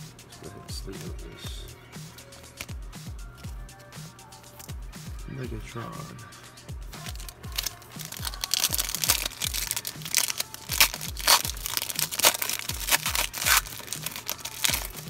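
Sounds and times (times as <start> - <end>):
background music with steady beat: 0.0 - 15.0
foil wrapper tearing and crinkling: 7.0 - 15.0.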